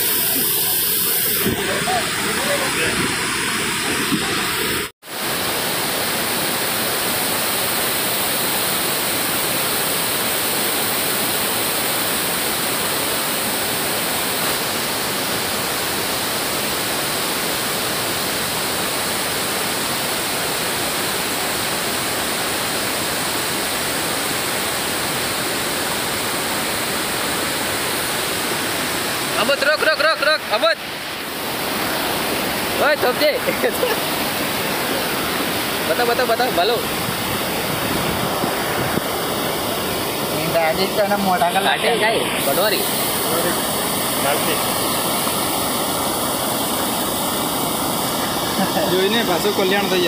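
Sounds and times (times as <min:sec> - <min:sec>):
water rushing over dam spillway: 0:00.0 - 0:50.0.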